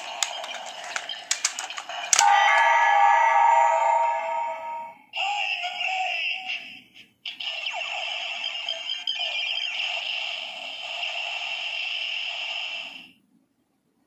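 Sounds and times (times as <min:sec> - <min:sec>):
sharp plastic clicks: 0:00.0 - 0:02.3
toy electronic sound effect: 0:07.3 - 0:13.1.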